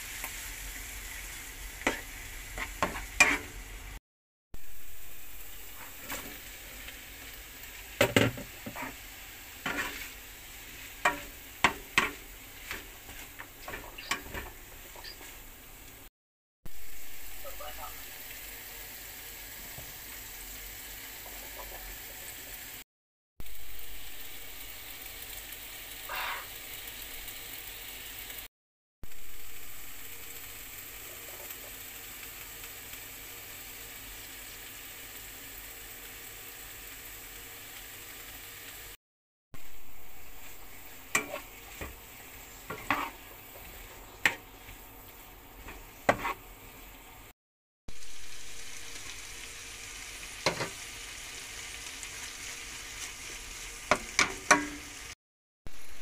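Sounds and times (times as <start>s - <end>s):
vegetables sizzling in frying pan: 0.0s - 4.0s, 4.6s - 16.1s, 16.7s - 39.0s, 39.6s - 56.0s
spatula scraping pan: 1.8s - 3.6s, 8.0s - 15.4s, 40.4s - 44.9s, 45.6s - 46.6s.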